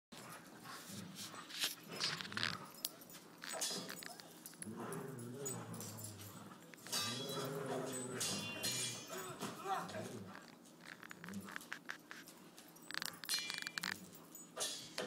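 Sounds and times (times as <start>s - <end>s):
dogs play growling: 0.2s - 14.4s
dogs scuffling: 0.2s - 14.4s.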